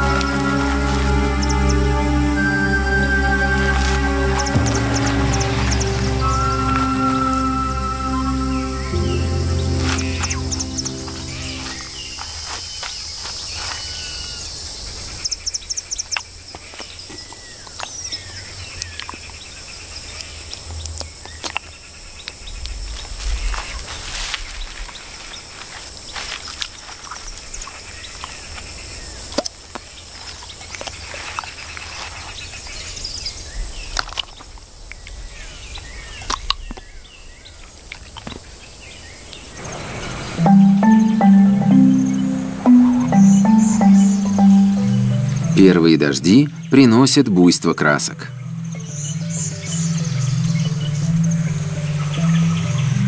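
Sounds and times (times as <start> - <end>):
steady high hiss: 0.0 - 12.8, 39.4 - 47.3
bird chirps: 0.0 - 14.5, 39.6 - 53.0.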